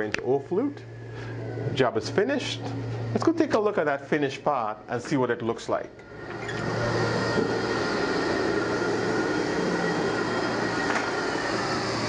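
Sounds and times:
industrial vacuum blower rushing: 0:06.0 - 0:12.0.

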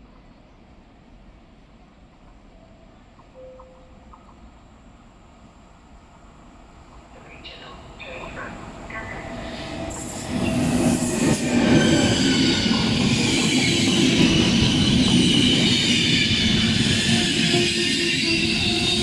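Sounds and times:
passenger train passing: 0:00.0 - 0:19.0
train wheels squealing: 0:09.4 - 0:19.0.

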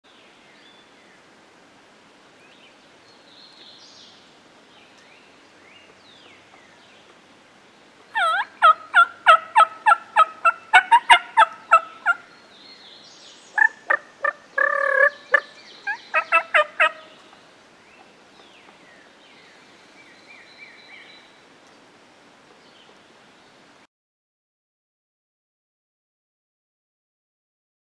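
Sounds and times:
faint songbird chirps: 0:02.4 - 0:09.1, 0:09.8 - 0:23.7
turkey call yelping notes: 0:08.2 - 0:12.3, 0:13.6 - 0:17.2.

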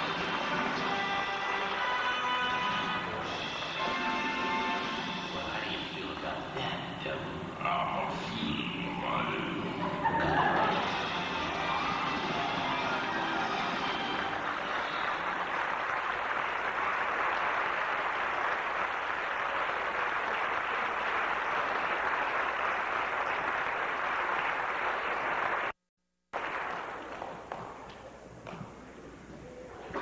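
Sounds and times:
audience applauding: 0:10.1 - 0:25.8, 0:26.4 - 0:27.9.

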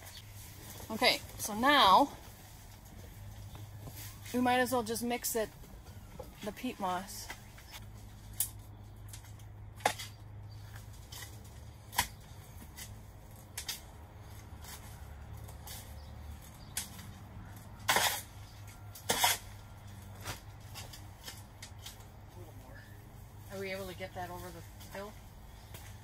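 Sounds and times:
gritty shovel scrapes: 0:17.8 - 0:19.6
shovel digging soil: 0:17.8 - 0:21.9.

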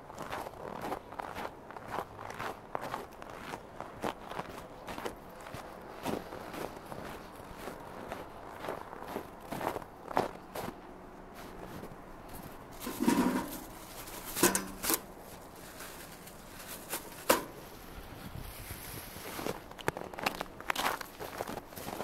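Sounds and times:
plastic bag rustling: 0:12.6 - 0:19.7
dispenser clicks and knocks: 0:12.8 - 0:15.1, 0:17.2 - 0:17.6.

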